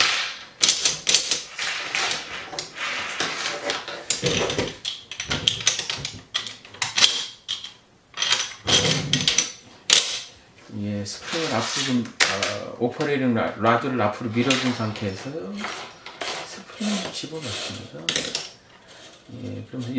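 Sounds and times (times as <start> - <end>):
metal scraping: 11.2 - 12.1, 14.2 - 19.9.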